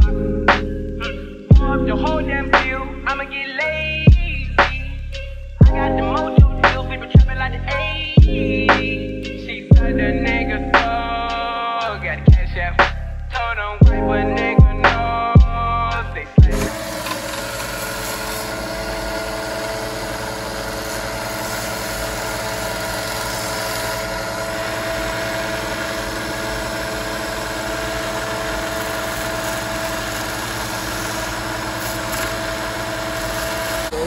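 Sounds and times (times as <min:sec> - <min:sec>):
belt sander whining: 0:16.4 - 0:34.0.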